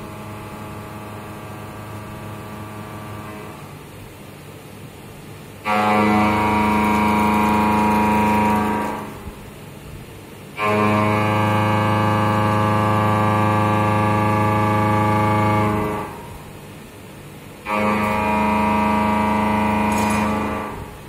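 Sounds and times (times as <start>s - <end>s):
quiet machine hum: 0.0s - 21.0s
milling cutter buzzing into metal: 5.7s - 9.2s, 17.7s - 21.0s.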